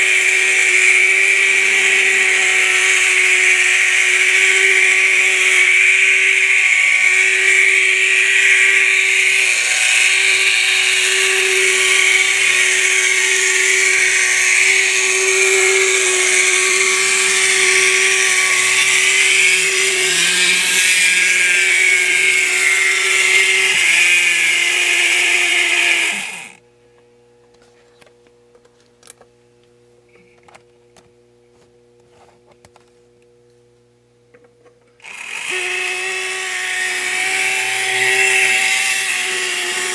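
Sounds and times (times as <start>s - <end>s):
small electric motor whining: 0.0s - 26.6s, 35.0s - 39.9s
faint hum: 0.0s - 39.9s.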